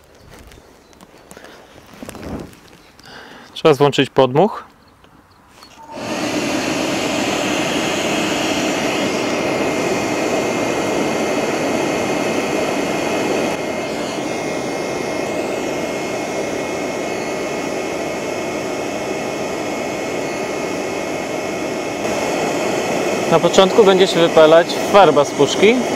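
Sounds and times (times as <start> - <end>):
thin steady whine: 4.8 - 25.9
blown air and furnace fire drone: 5.6 - 25.9.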